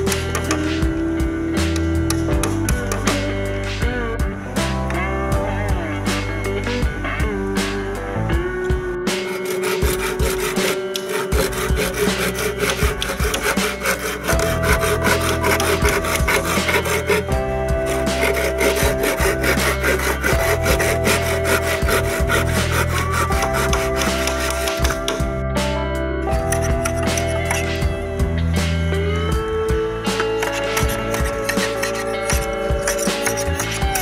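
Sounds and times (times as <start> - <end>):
background music: 0.0 - 34.0
machete cutting bamboo: 9.3 - 17.2, 17.9 - 25.2, 30.4 - 34.0.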